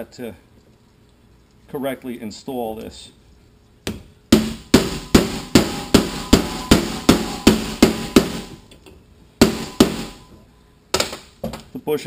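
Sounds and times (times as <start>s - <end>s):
hammer striking metal: 3.9s - 8.7s, 9.4s - 10.3s.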